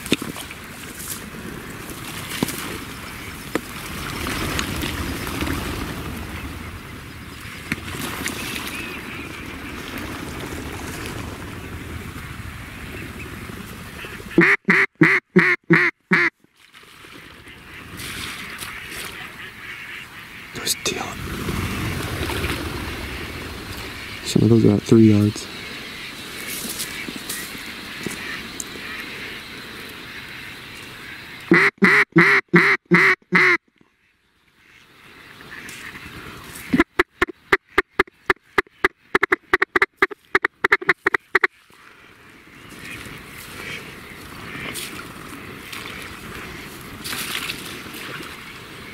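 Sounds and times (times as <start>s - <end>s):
wind noise: 0.0s - 14.8s, 17.0s - 31.5s
duck quacks: 14.0s - 16.3s, 31.0s - 33.6s, 36.6s - 41.5s
steady background hiss: 17.4s - 31.5s.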